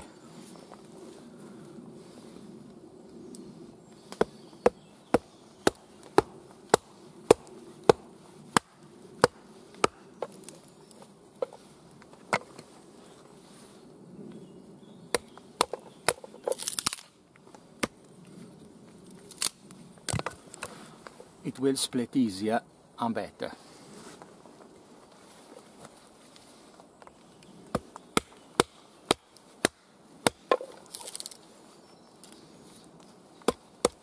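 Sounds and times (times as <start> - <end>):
wood splitting rustle: 3.9 - 13.5, 15.1 - 21.4, 23.6 - 34.0.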